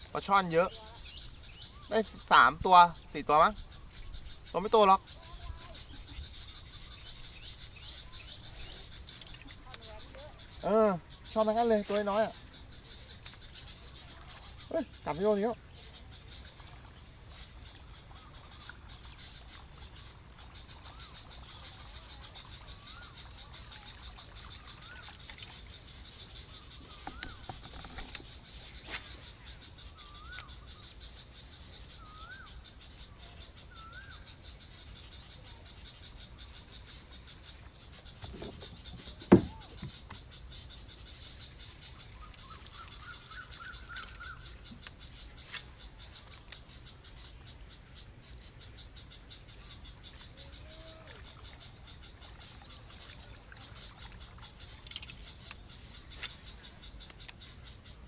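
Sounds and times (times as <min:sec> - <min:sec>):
birds chirping: 0:00.0 - 0:58.0
insects and frogs ticking: 0:00.0 - 0:58.0
sharp knock: 0:39.2 - 0:40.0.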